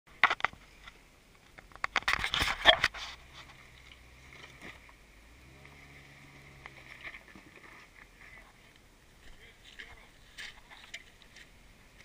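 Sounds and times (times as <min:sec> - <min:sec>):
car engine low hum: 0:00.1 - 0:12.0
tyres crunching over rocks: 0:05.6 - 0:12.0.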